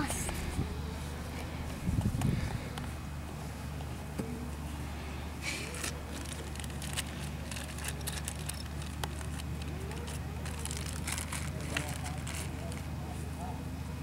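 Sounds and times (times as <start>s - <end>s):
steady low hum: 0.0s - 14.0s
wrapper rustling: 5.6s - 13.2s.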